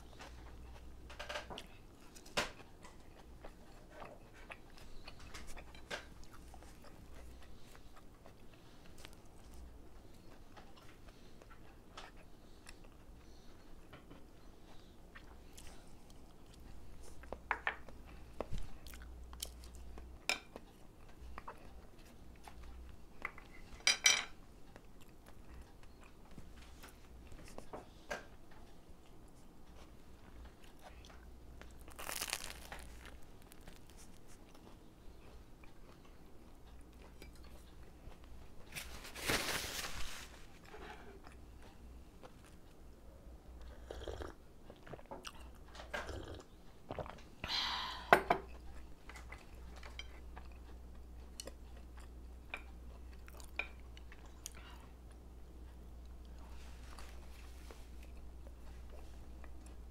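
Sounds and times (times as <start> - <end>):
crunchy bites and chewing: 30.7 - 34.8.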